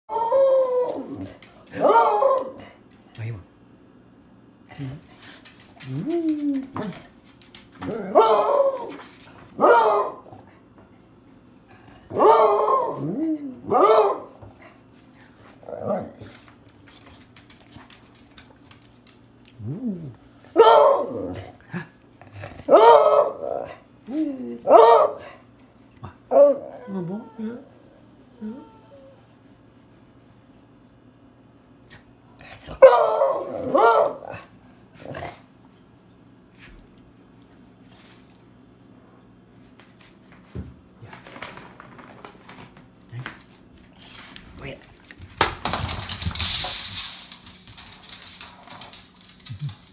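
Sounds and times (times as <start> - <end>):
dog howling: 0.1 - 2.7, 7.8 - 9.0, 12.1 - 14.4, 26.3 - 29.3
dog baying: 7.8 - 10.4.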